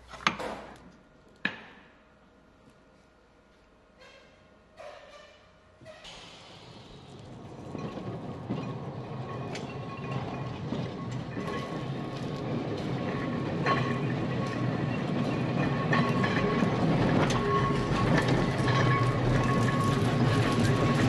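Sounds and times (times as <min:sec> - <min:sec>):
tram wheels clicking over rail joints: 0:06.1 - 0:21.0.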